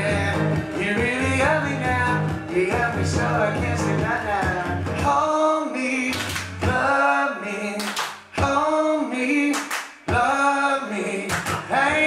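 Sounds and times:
acoustic guitar: 0.0s - 7.1s
man singing: 0.0s - 12.0s.

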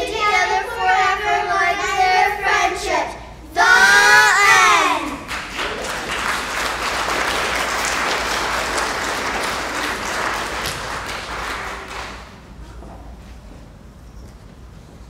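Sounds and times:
audience applauding: 5.0s - 12.5s.

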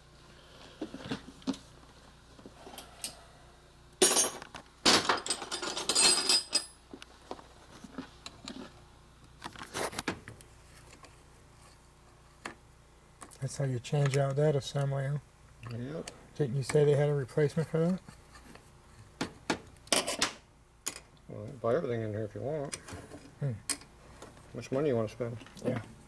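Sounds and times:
metal parts clinking and clattering: 4.0s - 6.8s.

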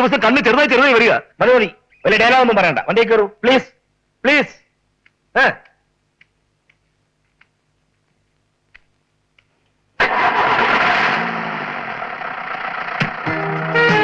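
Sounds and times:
faint clicks: 5.0s - 9.8s
van engine starting and running: 10.0s - 14.0s.

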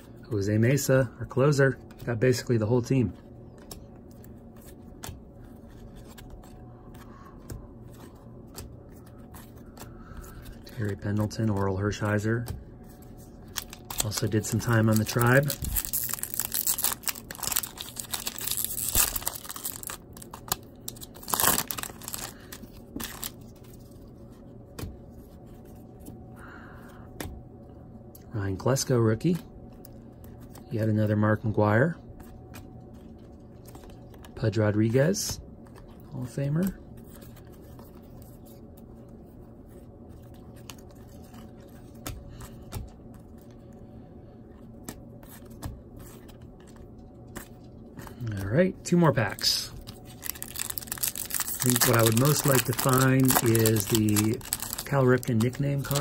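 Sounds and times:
steady low hum: 0.0s - 56.0s
soft clicks of cards handled: 3.2s - 11.7s
foil wrapper crinkling and tearing: 13.5s - 23.4s, 49.2s - 56.0s.

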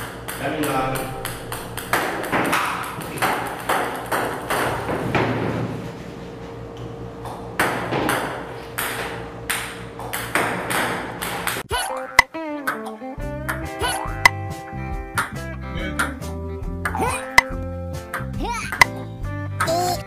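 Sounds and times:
table tennis balls clicking on table: 0.0s - 5.0s, 18.2s - 19.0s
steady low hum: 0.0s - 11.7s.

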